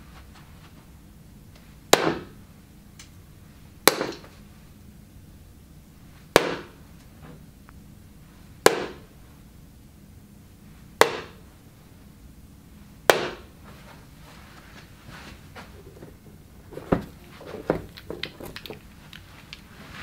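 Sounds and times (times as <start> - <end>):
darts striking dartboard: 1.9 - 2.4, 3.9 - 4.3, 6.3 - 6.8, 8.6 - 9.1, 11.0 - 11.4, 13.1 - 13.5.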